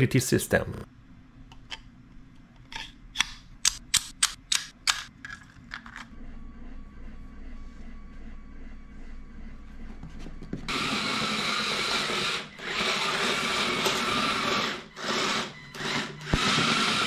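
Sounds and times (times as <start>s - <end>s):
electric motors whining: 10.7s - 17.0s.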